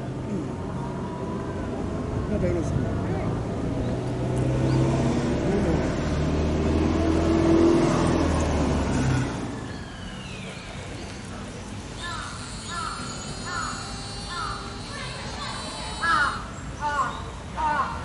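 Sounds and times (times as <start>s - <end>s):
crows cawing: 12.0s - 18.0s.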